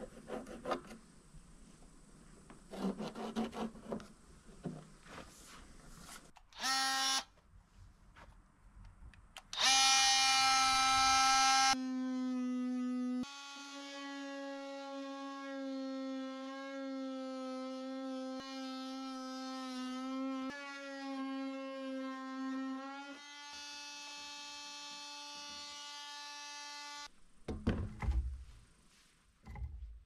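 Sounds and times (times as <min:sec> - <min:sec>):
small electric motor whining: 0:09.6 - 0:20.6.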